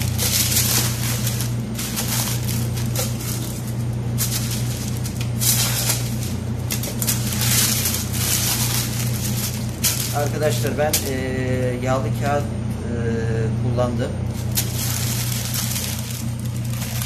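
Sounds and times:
baking paper rustling and crinkling: 0.0s - 12.4s, 14.3s - 17.0s
low hum: 0.0s - 17.0s.

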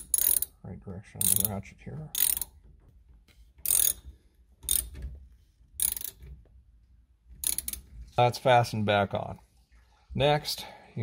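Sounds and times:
hand ratchet clicking: 0.0s - 0.5s, 1.2s - 2.6s, 3.6s - 5.0s, 5.8s - 6.2s, 7.4s - 7.9s.

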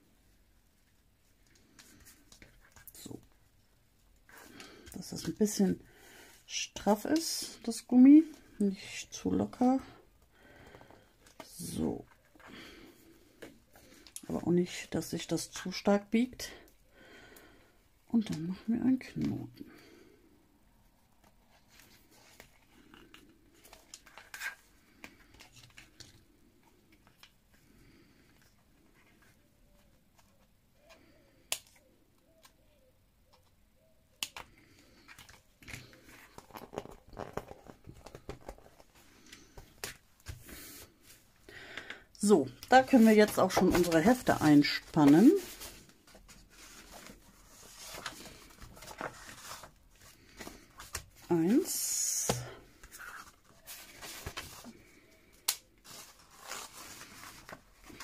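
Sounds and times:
paper and card rustling: 34.3s - 41.2s, 42.5s - 58.0s
elastic band rustling and tapping: 35.3s - 40.6s.

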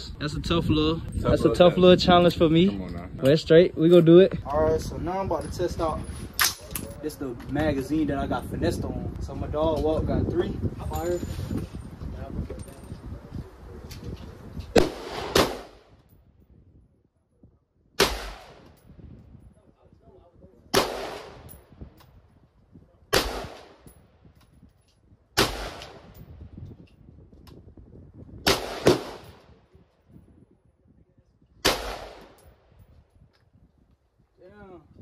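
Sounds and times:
rifle shots echoing: 14.8s - 15.9s, 18.0s - 18.8s, 20.7s - 21.5s, 23.1s - 23.9s, 25.4s - 26.2s, 28.5s - 29.4s, 31.6s - 32.4s.

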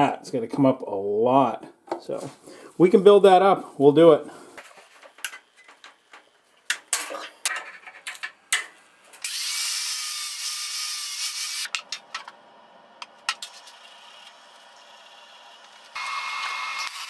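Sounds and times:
angle grinder grinding metal: 9.2s - 11.7s, 13.4s - 17.0s.

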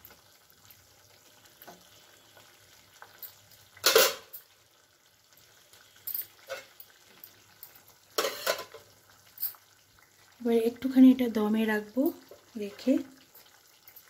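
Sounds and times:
spatula clattering down: 3.8s - 4.3s, 8.2s - 8.8s
spatula scraping in a pan: 6.2s - 6.9s, 8.2s - 8.9s.

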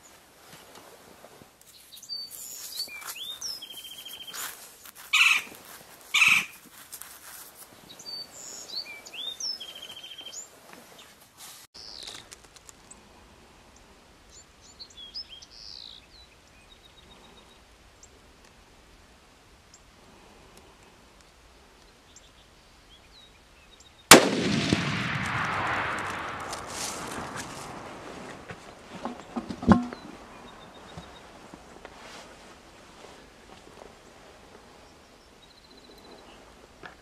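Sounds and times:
small birds chirping: 1.6s - 11.2s, 11.8s - 13.1s, 13.7s - 18.3s, 29.2s - 32.1s, 33.9s - 37.0s
rapid bird trill: 2.1s - 5.5s, 6.2s - 6.6s
loud sharp bird calls: 2.1s - 5.6s, 6.2s - 6.6s.

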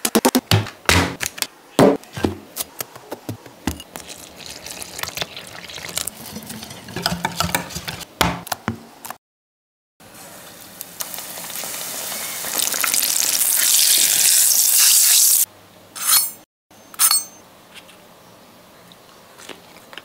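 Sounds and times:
stirring wet batter in bowl: 3.9s - 8.0s.

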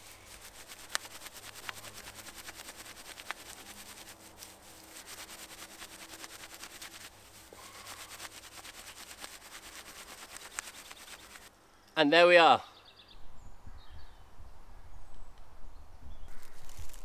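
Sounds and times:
bark fibres rubbed between hands: 0.0s - 11.5s, 16.4s - 17.0s.

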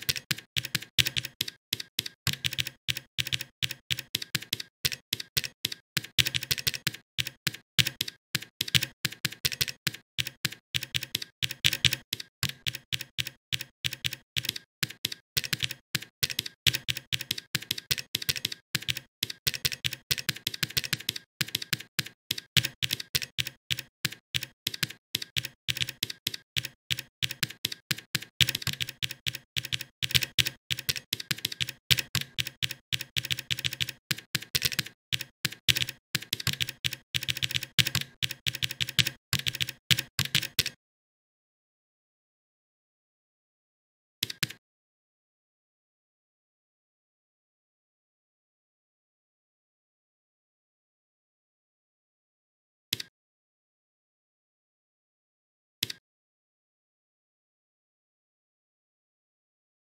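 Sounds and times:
computer keyboard typing: 0.0s - 40.8s, 44.2s - 44.6s.

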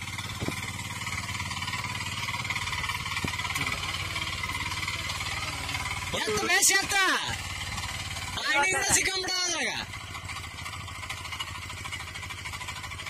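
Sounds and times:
diesel engine chugging: 0.0s - 13.0s.

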